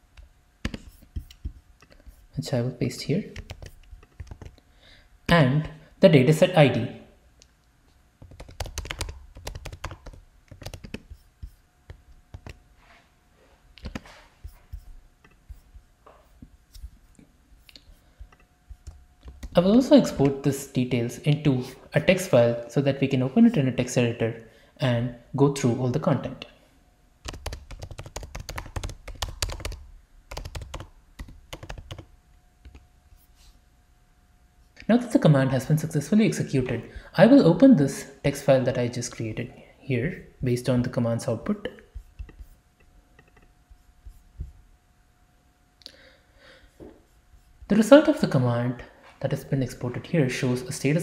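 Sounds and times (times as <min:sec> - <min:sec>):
computer keyboard typing: 0:00.2 - 0:02.2, 0:03.3 - 0:04.6, 0:08.2 - 0:12.6, 0:13.8 - 0:15.8, 0:17.6 - 0:20.4, 0:27.2 - 0:32.8.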